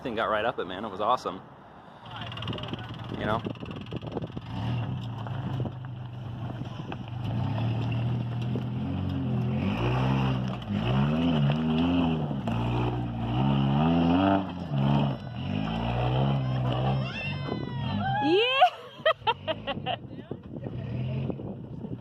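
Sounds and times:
truck engine revving: 2.1s - 18.1s, 20.7s - 21.5s.

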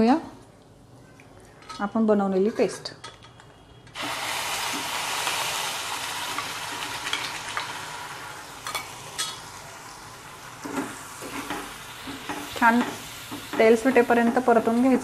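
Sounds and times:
paste sizzling in hot oil: 4.0s - 15.0s.

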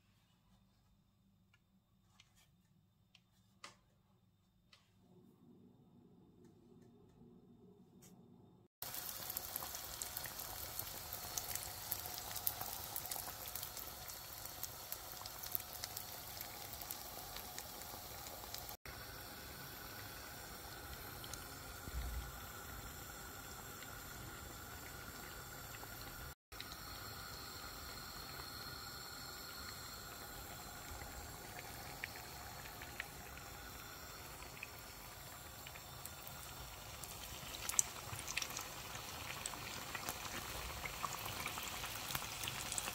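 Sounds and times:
donuts sizzling in hot oil: 8.8s - 42.9s.

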